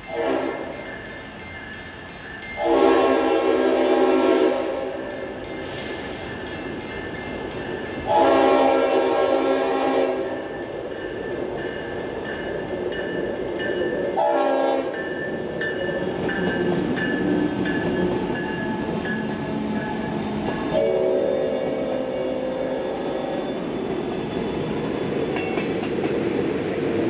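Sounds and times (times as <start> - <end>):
diesel locomotives rumbling past: 0.0 - 27.0
locomotive air horn blasts: 0.1 - 0.7, 2.6 - 5.0, 8.1 - 10.4, 14.2 - 14.9, 20.8 - 22.9.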